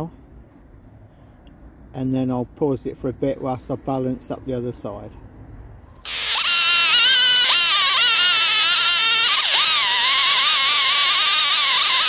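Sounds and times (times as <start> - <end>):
chainsaw cutting wood: 6.0 - 12.0.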